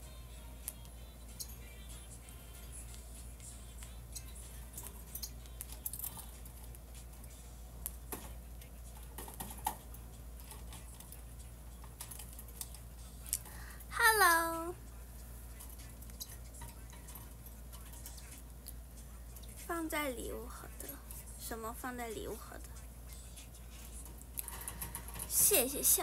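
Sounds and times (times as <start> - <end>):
woman's short exclamation: 13.9 - 14.7.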